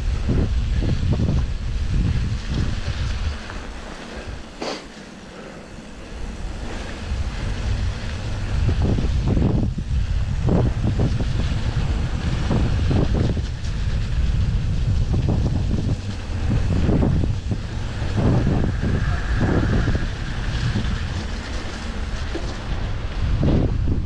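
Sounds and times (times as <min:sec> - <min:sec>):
wind buffeting microphone: 0:00.0 - 0:24.0
bike rattling and knocking: 0:19.6 - 0:24.0.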